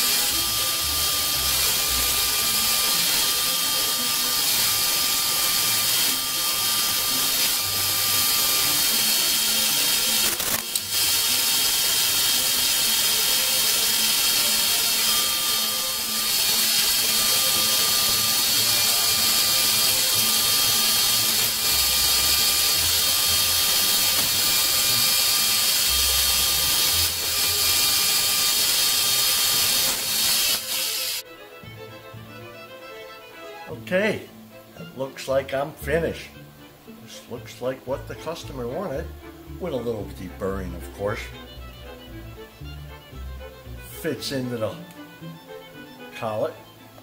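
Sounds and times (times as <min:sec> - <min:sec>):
milling machine cutting metal: 0:00.0 - 0:31.2.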